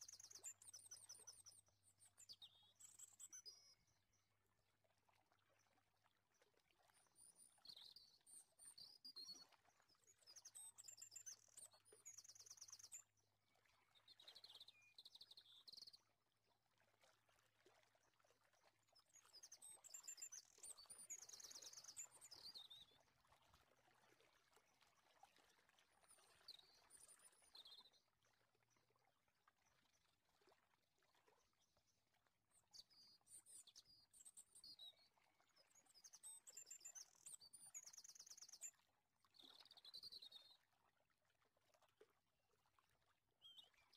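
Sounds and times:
faint bird chirps and trills: 0:00.0 - 0:16.2, 0:18.4 - 0:23.5, 0:24.7 - 0:28.9, 0:32.5 - 0:40.8, 0:43.4 - 0:43.9.

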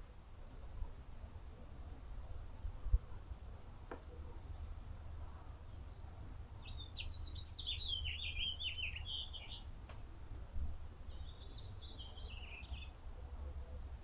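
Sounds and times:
songbird chirping and trilling: 0:05.6 - 0:09.7, 0:11.1 - 0:13.0.

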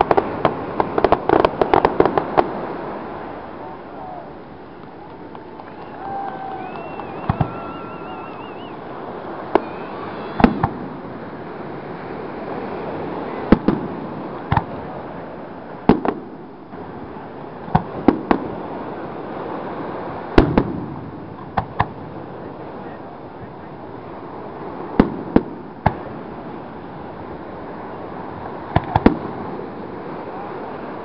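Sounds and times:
fireworks bursting: 0:00.0 - 0:31.0
steady background hiss: 0:00.0 - 0:31.0
warbling firework whistle: 0:05.0 - 0:10.9.

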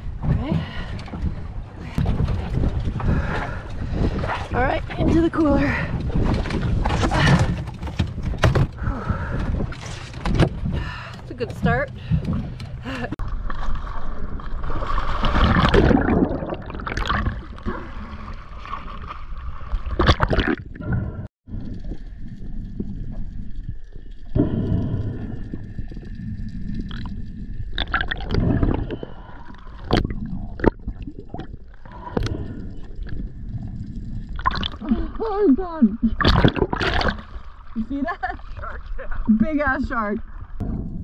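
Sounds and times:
sea water sloshing and splashing: 0:00.0 - 0:41.0
bubbles: 0:13.3 - 0:41.0.

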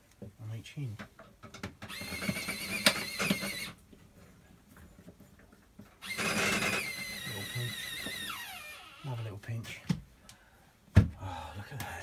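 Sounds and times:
electric screwdriver whirring: 0:01.9 - 0:03.8, 0:06.0 - 0:09.0.

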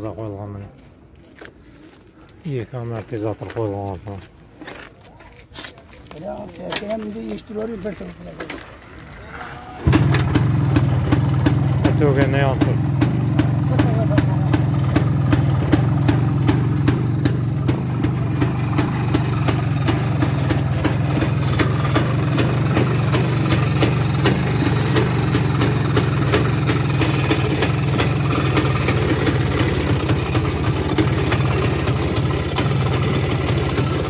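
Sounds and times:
motorcycle engine idling: 0:09.8 - 0:34.0.

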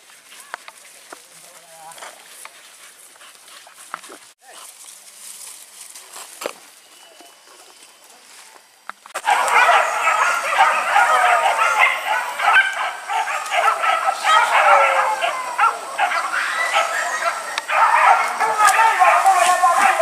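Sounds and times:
dogs yelping and barking: 0:09.2 - 0:20.0.

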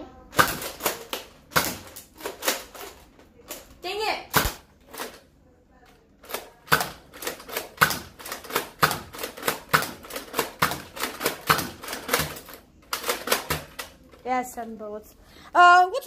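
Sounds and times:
toy blaster plastic clacks: 0:00.4 - 0:03.7, 0:06.2 - 0:14.1.

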